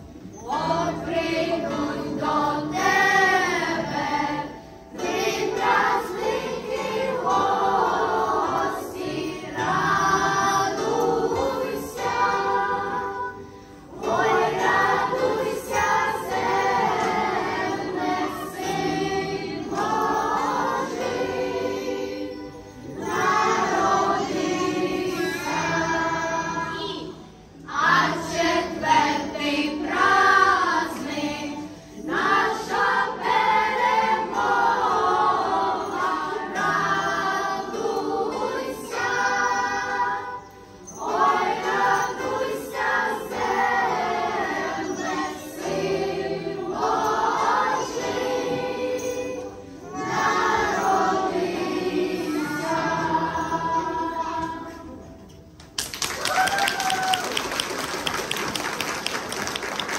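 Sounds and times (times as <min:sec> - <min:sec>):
church choir singing a carol: 0:00.0 - 0:55.5.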